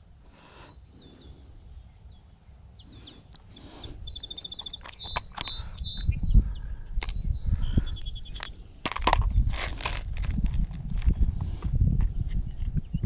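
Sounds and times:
songbirds calling: 0.0s - 9.9s, 10.5s - 13.0s.

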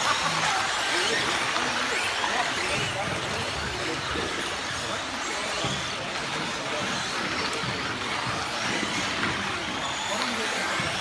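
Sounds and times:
rc car motor whine: 0.0s - 11.0s.

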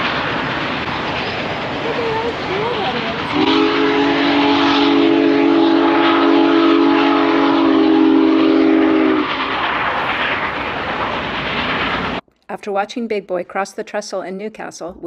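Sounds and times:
highway traffic: 0.0s - 3.4s
train rumble: 0.0s - 12.2s
steam locomotive chime whistle: 3.2s - 9.6s.

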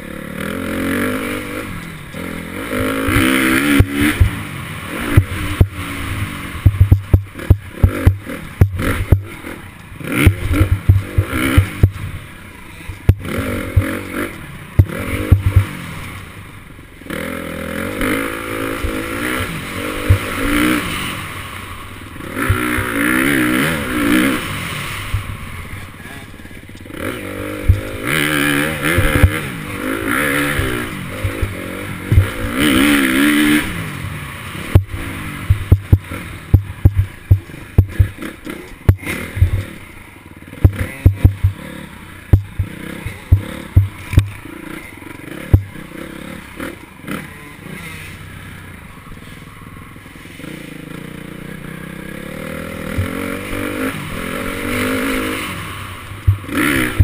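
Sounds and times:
dirt bike engine revving: 0.0s - 57.0s
sharp knocks and rattles: 34.8s - 39.8s, 42.3s - 44.4s.

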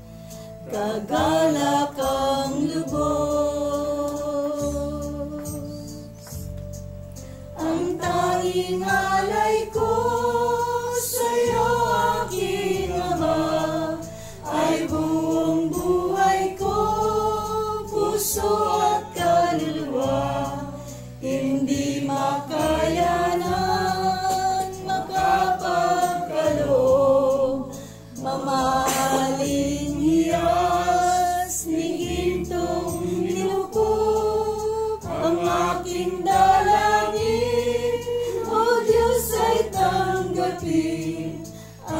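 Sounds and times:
group singing a hymn: 0.6s - 6.6s, 7.5s - 41.9s.

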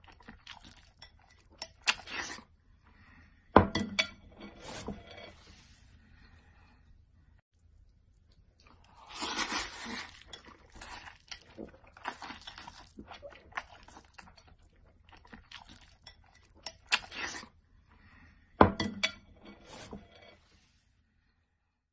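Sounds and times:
dishes and cutlery clinking: 18.6s - 20.4s.

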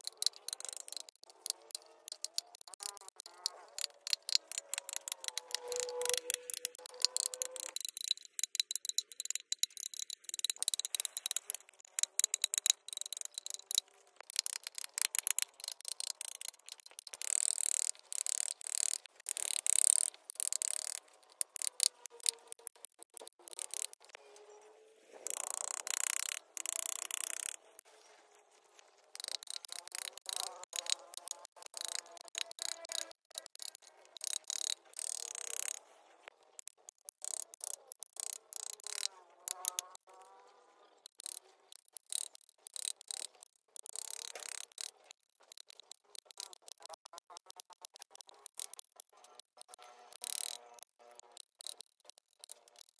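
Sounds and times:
carving tool scraping wood: 0.0s - 24.2s, 29.0s - 45.0s.

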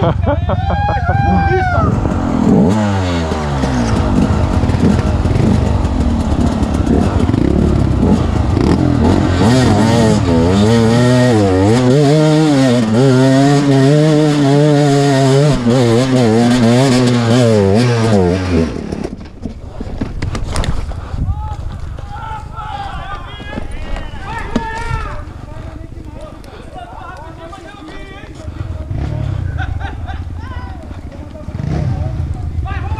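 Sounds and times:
dirt bike engine revving: 1.1s - 19.2s, 28.4s - 32.7s.

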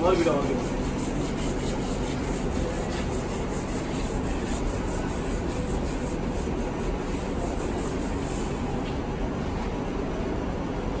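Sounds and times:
wax polish rubbed on metal: 0.0s - 8.7s.

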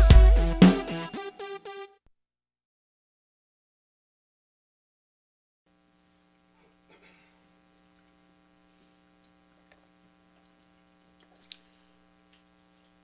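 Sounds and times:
electrical mains hum: 5.7s - 13.0s.

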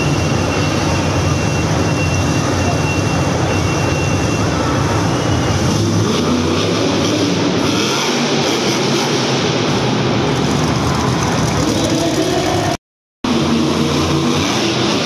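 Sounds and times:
monster truck engine drone: 0.0s - 15.0s.

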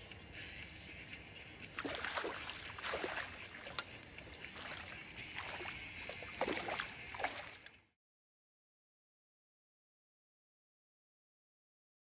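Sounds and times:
water splashing and sloshing: 1.6s - 7.8s
river rushing: 1.8s - 7.6s.

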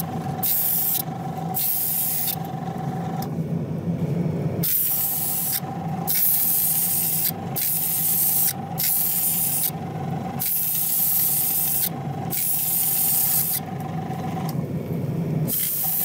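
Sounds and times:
steady low hum: 0.0s - 16.0s
paint spray gun hissing: 1.6s - 2.4s, 4.6s - 9.7s, 10.4s - 13.6s, 15.5s - 16.0s.

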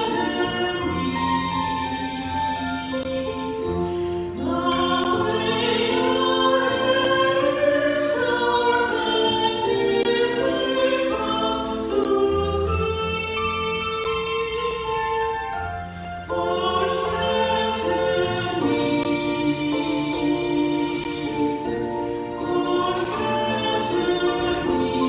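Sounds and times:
people singing a slow hymn: 4.4s - 14.8s, 16.3s - 25.0s.

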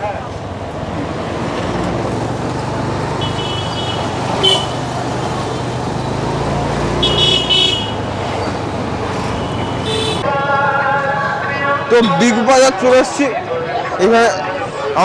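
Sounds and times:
motorbike engine and road rumble: 0.0s - 10.2s
vehicle horn toots: 3.2s - 4.8s, 7.0s - 8.0s, 9.4s - 10.2s.

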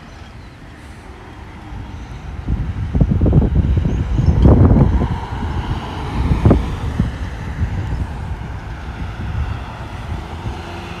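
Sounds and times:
road traffic rumble: 0.0s - 11.0s
wind buffeting microphone: 0.0s - 11.0s.

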